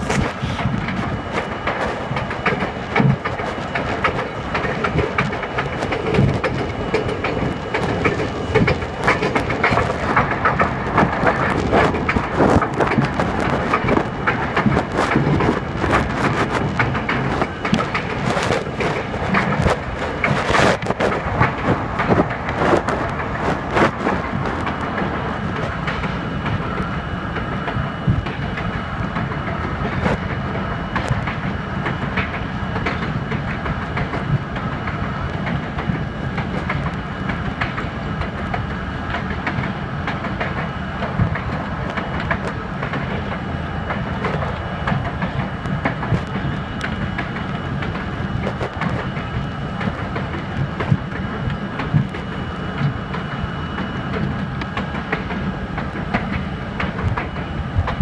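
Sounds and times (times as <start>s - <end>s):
clicks over rail joints: 0.0s - 26.8s
thin steady whine: 0.0s - 58.0s
train wheels rumbling on rail: 0.0s - 58.0s.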